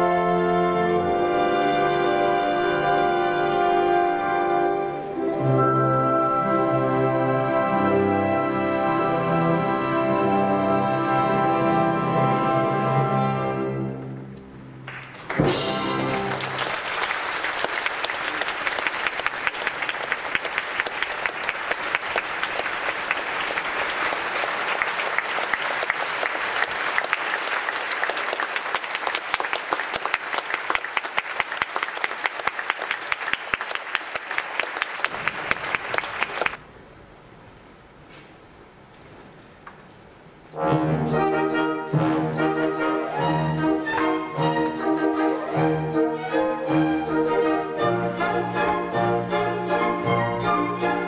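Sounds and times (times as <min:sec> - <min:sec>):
audience applauding: 0:14.8 - 0:36.6.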